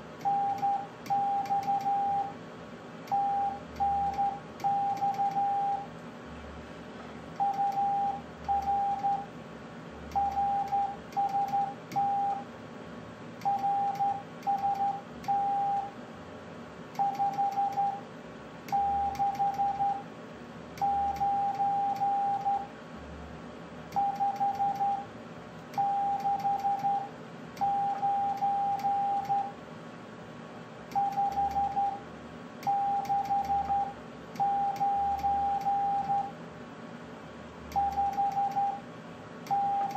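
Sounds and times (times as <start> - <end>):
morse code beeps: 0.2 - 2.3, 3.1 - 5.9, 7.4 - 9.3, 10.1 - 12.4, 13.4 - 15.9, 17.0 - 18.0, 18.7 - 20.0, 20.8 - 22.7, 24.0 - 25.1, 25.8 - 29.5, 30.9 - 32.0, 32.6 - 36.3, 37.7 - 38.8, 39.5 - 39.9.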